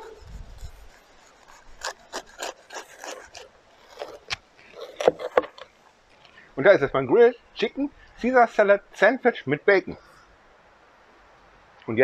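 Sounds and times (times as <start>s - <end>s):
knife sawing through bread: 0.0s - 5.4s.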